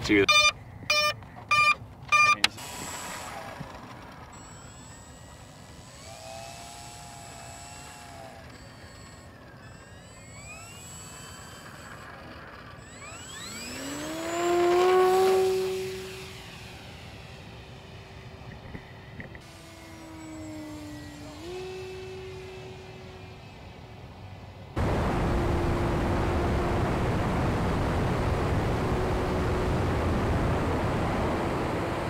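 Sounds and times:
electric motor and propeller whine: 0.0 - 32.0
short beeps: 0.2 - 2.5
faint wavering tones: 19.7 - 23.9.

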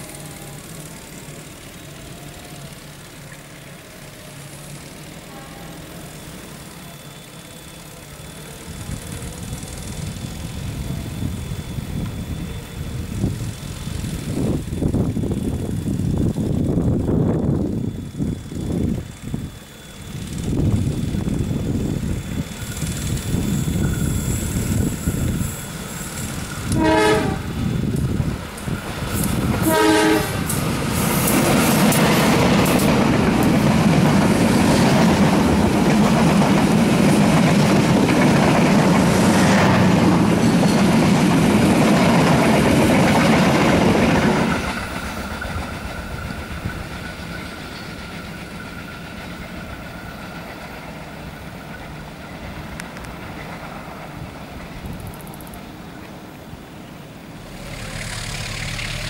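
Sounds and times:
locomotive rumbling: 0.0 - 59.0
train coaches rolling past: 0.0 - 59.0
train horn blasts: 5.2 - 6.1, 26.7 - 27.7, 29.6 - 30.6.

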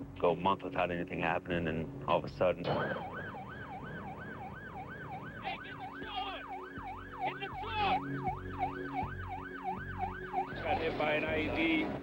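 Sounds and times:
vehicle siren yelping: 2.7 - 11.6.

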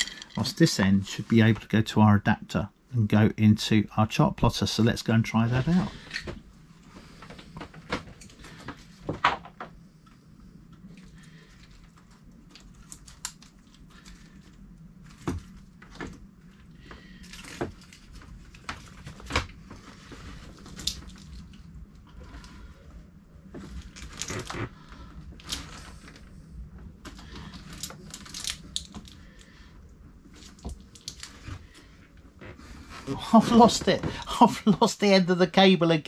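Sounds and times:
faint low hum: 0.0 - 36.0
cables and plastic connectors clicking: 10.7 - 14.6, 27.0 - 29.5, 30.4 - 31.6.

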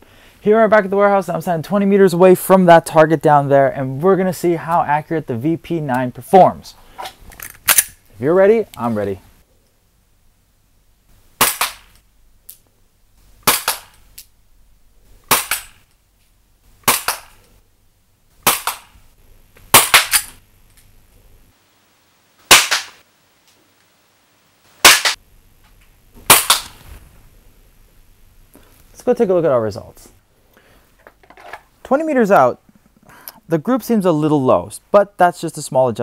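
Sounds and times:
airsoft pistol shots: 11.4 - 11.9, 13.4 - 14.0, 15.3 - 15.8, 16.8 - 17.4, 18.4 - 18.9, 19.7 - 20.3, 22.5 - 23.0, 24.8 - 25.2, 26.3 - 26.8.

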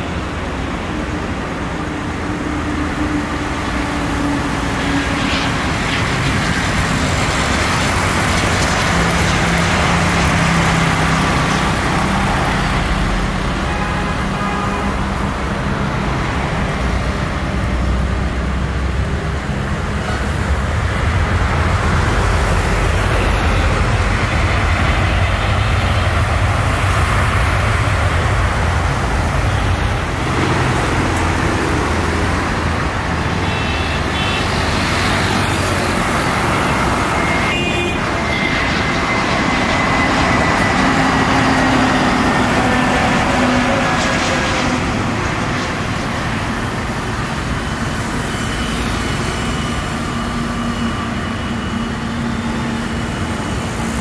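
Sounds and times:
jet engines roaring: 0.0 - 54.0
jet engine whine falling in pitch: 33.0 - 54.0.

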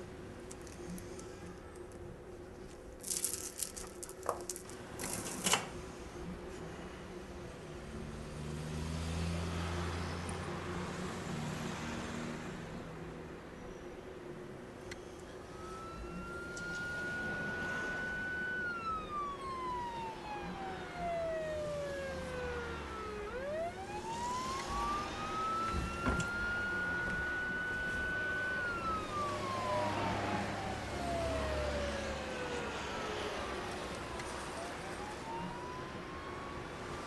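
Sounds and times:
siren wailing: 15.4 - 37.0.

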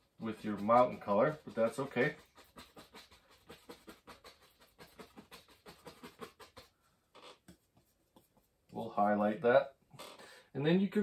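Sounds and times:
brush tapping on canvas: 7.4 - 8.8.

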